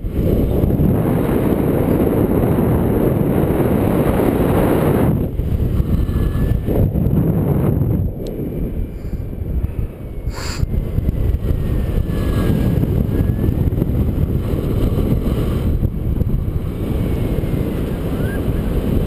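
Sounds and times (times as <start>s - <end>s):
wind rushing over microphone: 0.0s - 19.0s.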